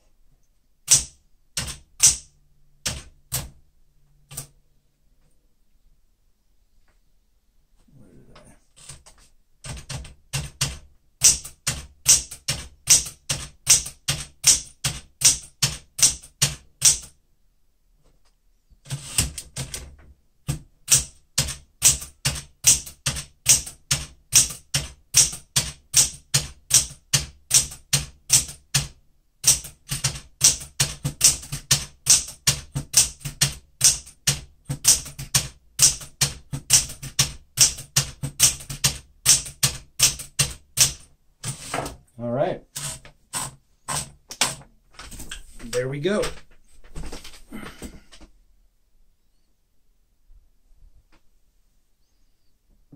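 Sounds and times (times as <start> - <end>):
manual typewriter typing: 0.8 - 3.5, 8.8 - 17.2, 18.8 - 41.8, 42.7 - 46.4.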